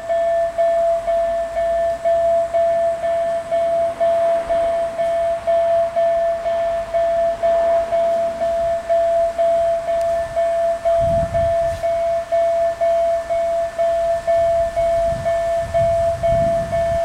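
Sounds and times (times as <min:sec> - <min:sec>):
level crossing signal ringing: 0:00.0 - 0:17.0.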